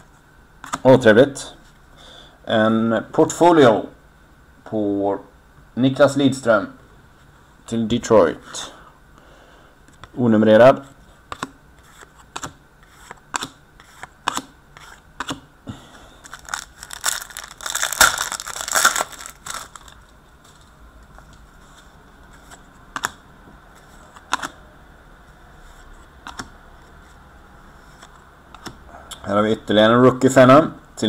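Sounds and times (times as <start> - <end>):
rustle of card packs handled: 16.2 - 22.6.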